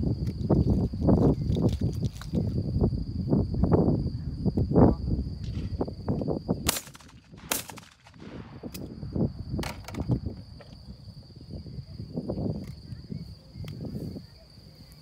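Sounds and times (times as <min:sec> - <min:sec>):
shotgun shots: 0:06.6 - 0:08.9.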